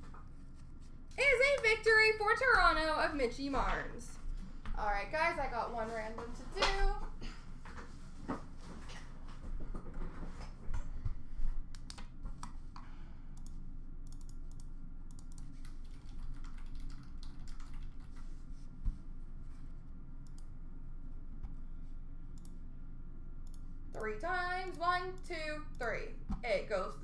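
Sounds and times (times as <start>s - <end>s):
typing on computer keyboard: 14.1s - 18.2s.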